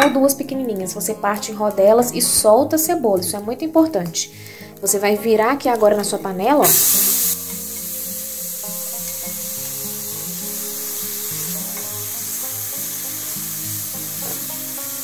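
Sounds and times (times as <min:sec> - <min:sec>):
light instrumental tune: 0:00.0 - 0:15.0
onion sizzling in frying pan: 0:04.9 - 0:15.0.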